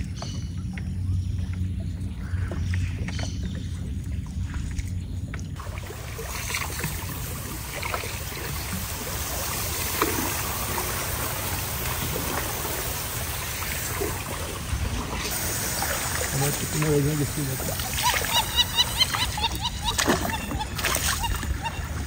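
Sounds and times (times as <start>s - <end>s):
low rumble: 0.0s - 9.5s
steady rain hiss: 5.9s - 19.7s.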